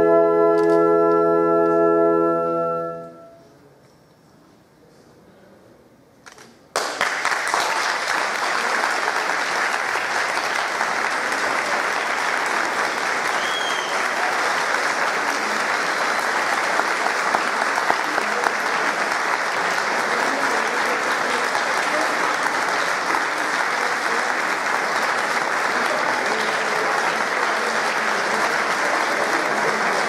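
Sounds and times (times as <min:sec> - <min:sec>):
audience applause: 0:06.7 - 0:30.0.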